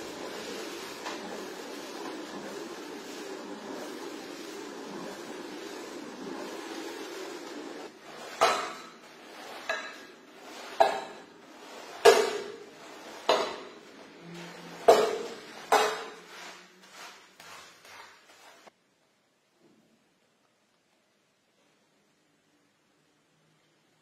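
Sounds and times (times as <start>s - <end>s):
floor scrubber running: 0.0s - 18.7s.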